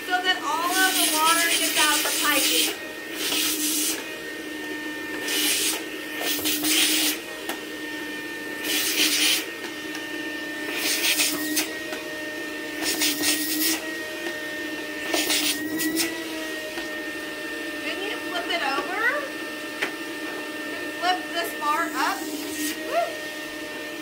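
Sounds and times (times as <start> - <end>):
vacuum cleaner running: 0.0 - 24.0
hissing rush of suction: 0.6 - 4.0, 5.1 - 7.3, 8.6 - 9.5, 10.6 - 11.8, 12.7 - 13.9.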